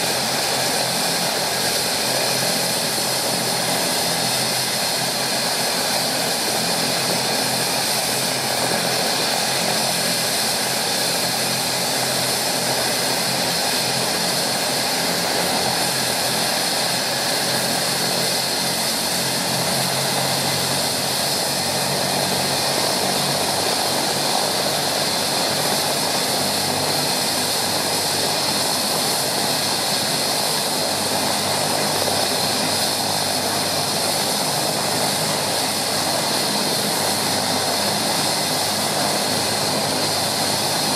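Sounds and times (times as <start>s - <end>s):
helicopter engines whining: 0.0s - 40.9s.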